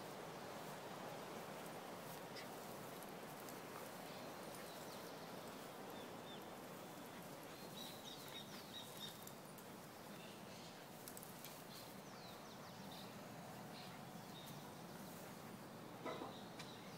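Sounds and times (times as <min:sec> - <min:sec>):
faint outdoor background hiss: 0:00.0 - 0:16.9.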